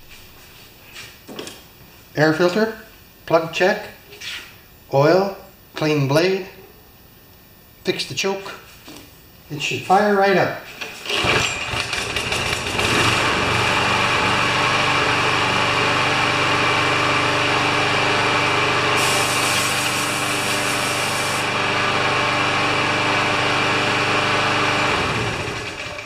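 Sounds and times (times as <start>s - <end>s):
lawn mower engine starting and running: 10.8s - 26.0s.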